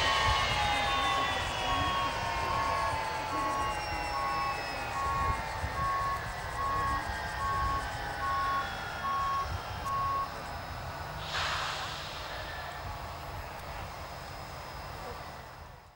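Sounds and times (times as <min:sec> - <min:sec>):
jet engines whining down: 0:00.0 - 0:15.9
electronic beeping: 0:01.5 - 0:10.4
short hiss: 0:11.2 - 0:12.8.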